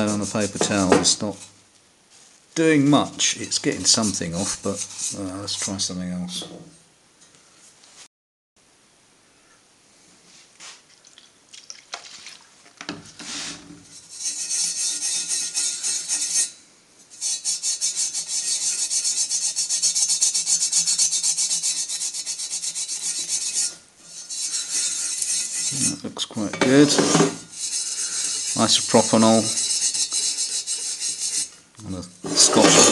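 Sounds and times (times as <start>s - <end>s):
abrasive pad scrubbing metal: 0.0s - 1.5s, 3.2s - 6.2s, 14.0s - 16.6s, 17.2s - 26.1s, 26.7s - 31.6s.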